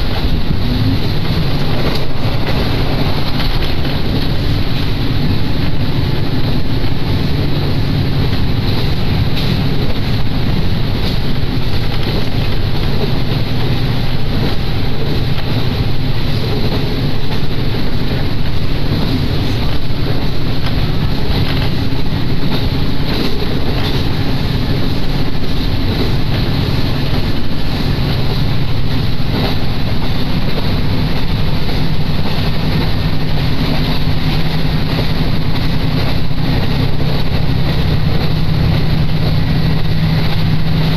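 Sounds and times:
railcar engine drone: 0:00.0 - 0:40.9
wheels on rails: 0:00.0 - 0:40.9
wind on microphone: 0:00.0 - 0:40.9.

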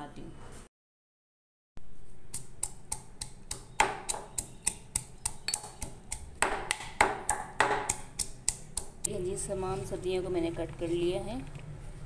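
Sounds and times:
stone pestle pounding in mortar: 0:02.3 - 0:09.0.

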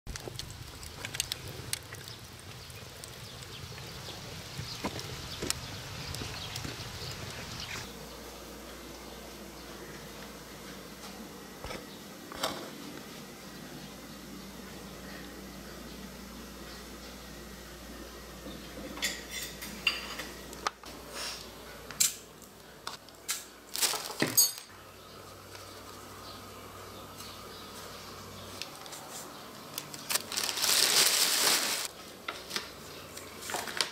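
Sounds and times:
wood fire crackling: 0:00.1 - 0:10.4, 0:27.1 - 0:33.9.

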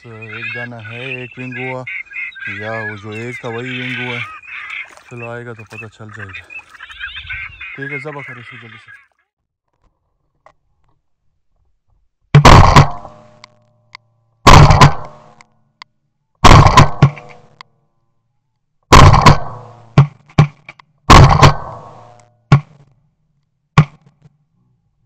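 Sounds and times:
shotgun shots with echo: 0:12.4 - 0:13.3, 0:14.5 - 0:15.3, 0:16.4 - 0:17.3, 0:18.9 - 0:20.1, 0:21.1 - 0:22.7.

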